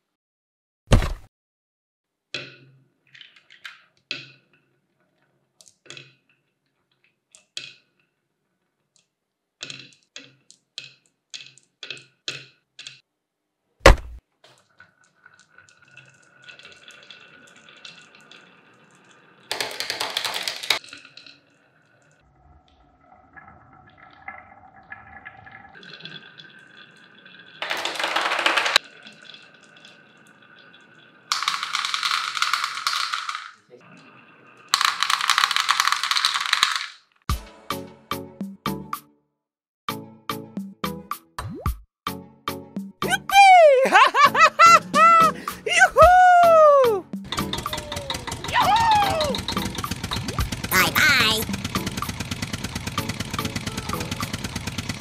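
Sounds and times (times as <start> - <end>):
marbles clattering into toy trailer: 3.1 - 4.4, 19.5 - 21.4, 27.6 - 29.0, 31.3 - 33.7, 34.7 - 37.2
marbles rolling on wooden track: 15.0 - 22.1, 25.8 - 33.7, 34.6 - 37.2
marbles clicking on wood: 19.5 - 21.4, 27.6 - 28.8, 31.3 - 33.6, 34.7 - 37.1.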